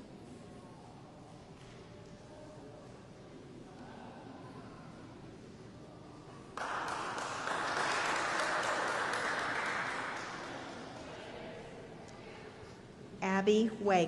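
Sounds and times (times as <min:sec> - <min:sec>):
faint room murmur: 0:00.0 - 0:14.0
audience applauding: 0:06.6 - 0:11.0.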